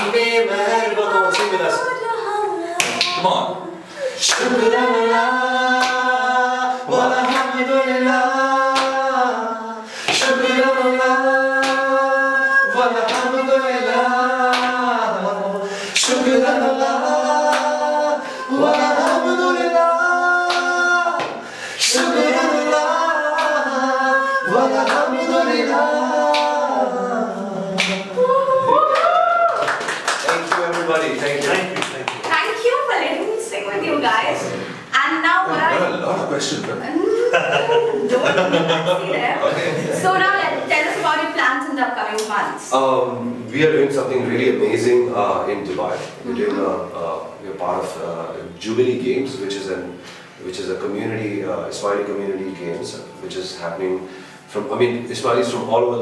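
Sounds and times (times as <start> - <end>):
group singing a cappella: 0.0 - 29.8, 33.5 - 56.0
hand clap: 1.3 - 1.6, 2.8 - 3.2, 5.8 - 6.0, 7.2 - 7.5, 8.7 - 9.0, 10.1 - 10.4, 11.6 - 11.9, 13.1 - 13.3, 14.5 - 14.8, 17.5 - 17.7, 20.4 - 21.4, 23.4 - 23.6, 24.8 - 25.1, 26.3 - 26.6, 27.7 - 28.1, 28.9 - 32.4.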